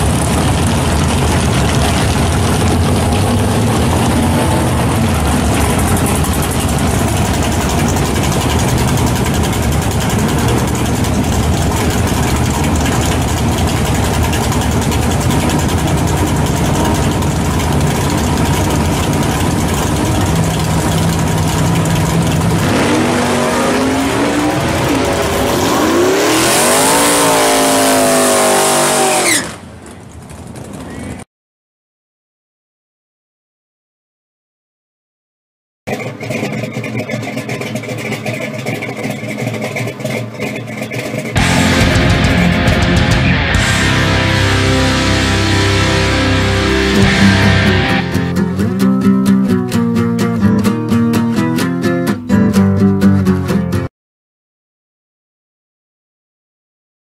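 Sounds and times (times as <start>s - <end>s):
race car engine revving: 0.0s - 29.6s, 35.9s - 49.0s.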